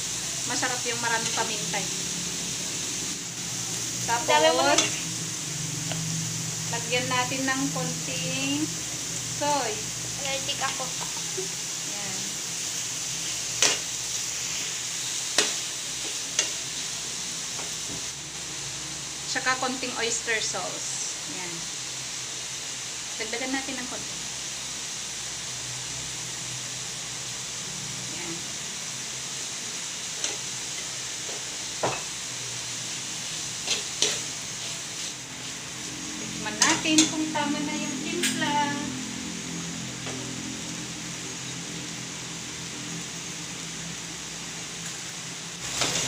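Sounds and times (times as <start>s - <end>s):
food sizzling in a frying pan: 0.0s - 46.0s
metal spatula scraping a pan: 4.3s - 5.1s, 33.6s - 37.3s.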